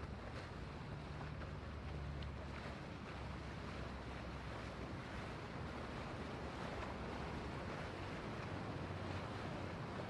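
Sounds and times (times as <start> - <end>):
water rushing from hull: 0.0 - 10.0.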